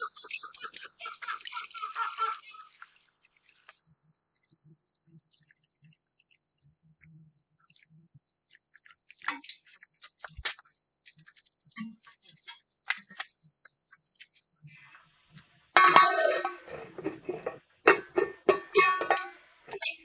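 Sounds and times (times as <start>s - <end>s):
metal lid clattering on pot: 15.8s - 20.0s
sharp metal clanks: 15.8s - 20.0s.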